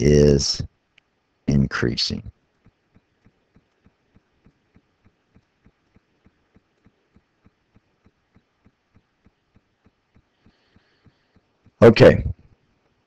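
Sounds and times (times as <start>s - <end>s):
faint low clicks: 0.9s - 1.2s.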